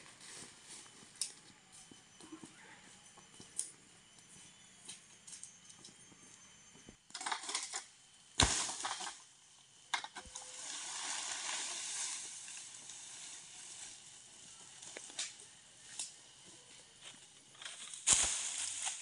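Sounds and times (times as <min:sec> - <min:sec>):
dry palm fronds rustling: 0:10.2 - 0:16.2, 0:17.0 - 0:19.0.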